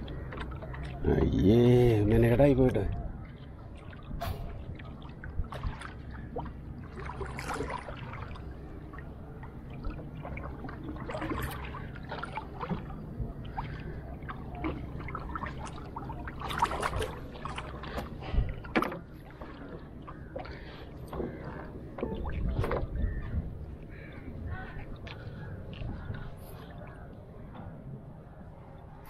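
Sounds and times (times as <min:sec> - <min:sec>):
water lapping around canoe: 0:00.0 - 0:27.9
short splashes and knocks: 0:02.9 - 0:23.1.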